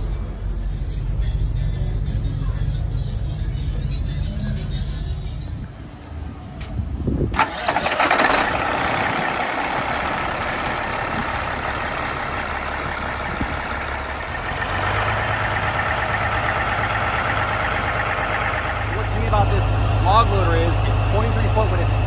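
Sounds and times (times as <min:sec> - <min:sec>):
diesel truck engine starting and idling: 0:00.0 - 0:22.0
deep low hum: 0:09.0 - 0:22.0.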